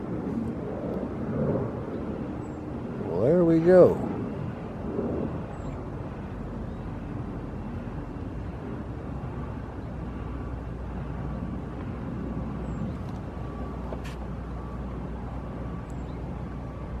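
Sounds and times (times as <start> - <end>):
distant traffic rumble: 0.0 - 17.0
faint steady tone: 0.0 - 17.0.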